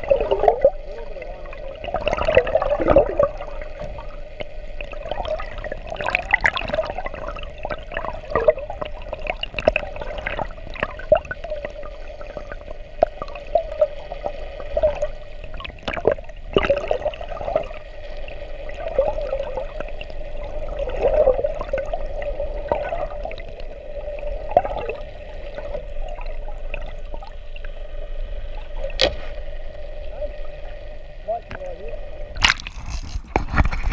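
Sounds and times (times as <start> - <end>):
underwater clicks and crackles: 0.0 - 33.9
underwater gurgling wash: 0.0 - 33.9.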